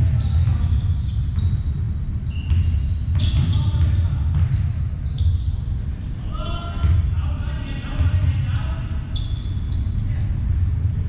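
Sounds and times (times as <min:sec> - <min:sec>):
basketball bouncing: 0:00.0 - 0:05.4, 0:06.8 - 0:07.1
sneakers squeaking on floor: 0:00.0 - 0:10.9
low rumble of hall: 0:00.0 - 0:11.0.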